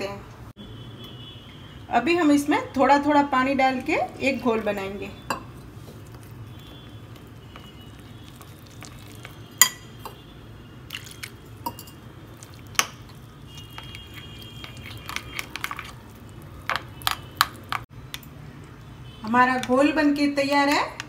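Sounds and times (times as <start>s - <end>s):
metal spoon stirring batter: 4.2s - 10.3s, 10.9s - 17.9s
spoon clinking against glass bowl: 8.3s - 10.2s, 11.6s - 12.1s.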